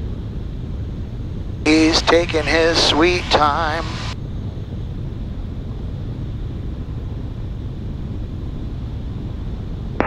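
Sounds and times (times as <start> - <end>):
air noise over airframe: 0.0 - 10.0
aircraft engine and propeller drone: 0.0 - 10.0.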